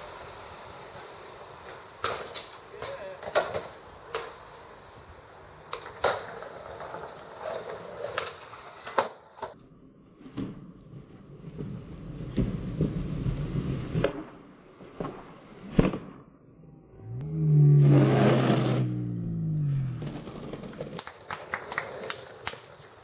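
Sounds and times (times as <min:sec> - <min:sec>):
skateboard wheels rolling on stone: 0:00.0 - 0:15.2, 0:19.8 - 0:23.0
skateboard clacking on ground: 0:00.9 - 0:09.6, 0:20.7 - 0:23.0.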